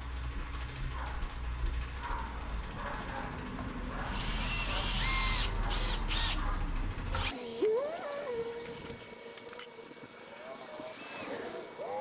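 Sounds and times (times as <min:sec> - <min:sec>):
cordless drill motor whining: 0:04.2 - 0:06.4.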